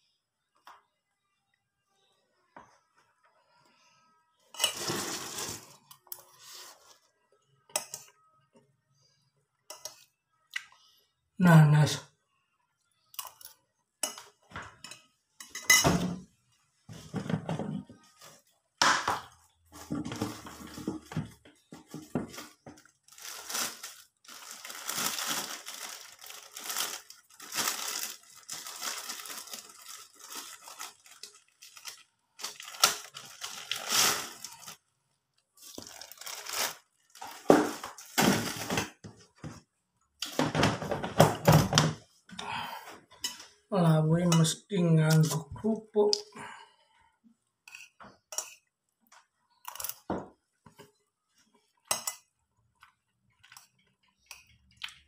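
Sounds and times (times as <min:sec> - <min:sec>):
rustling and crinkling: 0:04.6 - 0:07.1, 0:19.7 - 0:34.8, 0:35.5 - 0:39.7.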